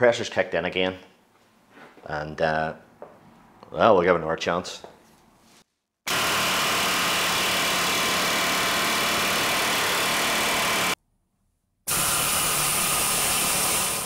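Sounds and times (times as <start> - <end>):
pneumatic air hammer: 6.1 - 11.0, 11.9 - 14.0.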